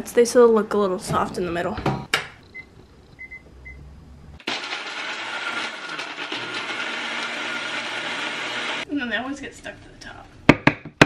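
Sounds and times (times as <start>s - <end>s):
blender grinding cookies: 4.4s - 8.8s.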